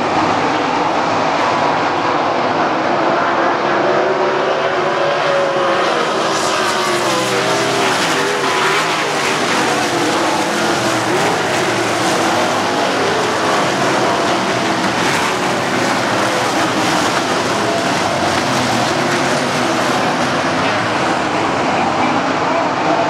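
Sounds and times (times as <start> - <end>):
racing car engines: 0.0 - 23.0.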